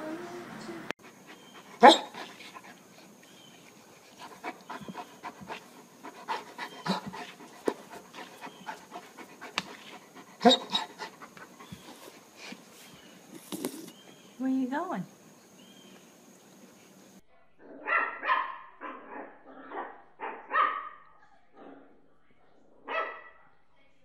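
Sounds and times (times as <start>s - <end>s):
dog panting: 1.0s - 12.9s.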